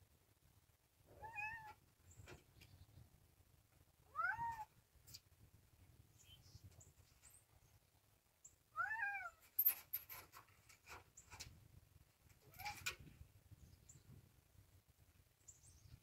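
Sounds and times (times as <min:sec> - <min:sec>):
cat meowing: 0:01.2 - 0:01.8, 0:04.1 - 0:04.7, 0:08.8 - 0:09.4.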